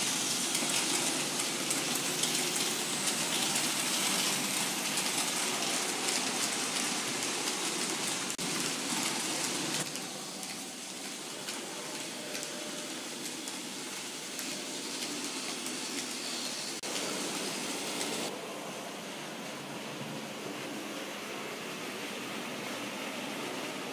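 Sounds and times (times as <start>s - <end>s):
model train wheels on track: 0.0s - 18.4s.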